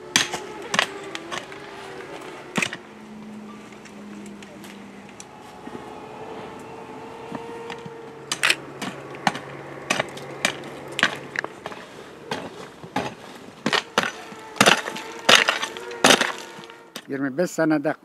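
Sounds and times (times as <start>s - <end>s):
hoe chopping into stony soil: 0.1s - 1.7s, 7.7s - 17.1s.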